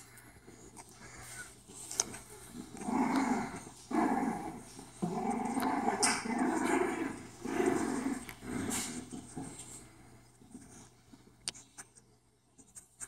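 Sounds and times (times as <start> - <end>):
dog growling: 2.5 - 10.0.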